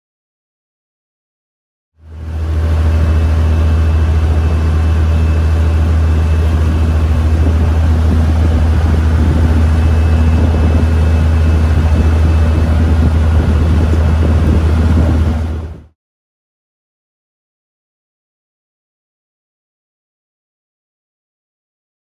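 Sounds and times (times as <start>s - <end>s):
boat engine droning: 2.0s - 16.0s
wind: 2.0s - 16.0s
water rushing: 2.1s - 15.9s.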